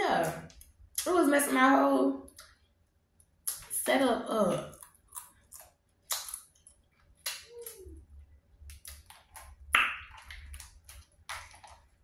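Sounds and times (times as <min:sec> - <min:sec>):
seafood shell cracking: 0:04.7 - 0:07.7.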